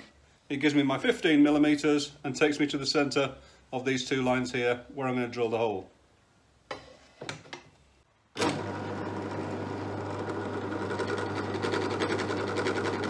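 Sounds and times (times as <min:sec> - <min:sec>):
drill press humming: 0:08.4 - 0:13.0.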